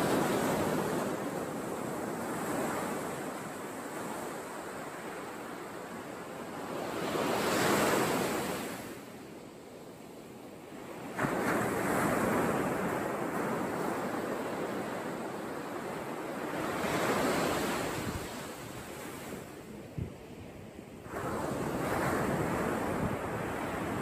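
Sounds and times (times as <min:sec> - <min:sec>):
waves breaking on beach: 0:00.0 - 0:09.2, 0:09.9 - 0:24.0.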